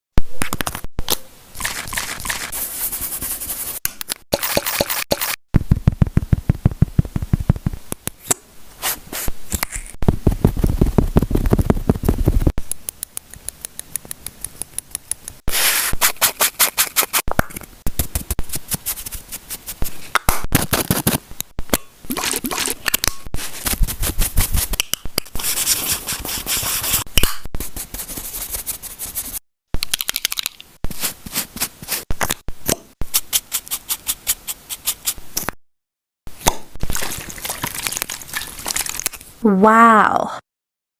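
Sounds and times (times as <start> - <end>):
pencil scribbling on paper: 25.4 - 27.1.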